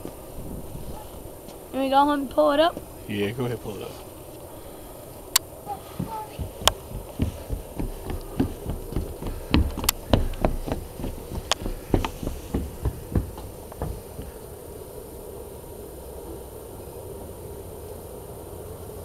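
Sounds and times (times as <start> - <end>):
rope knocking and rubbing on railing: 5.8 - 14.4.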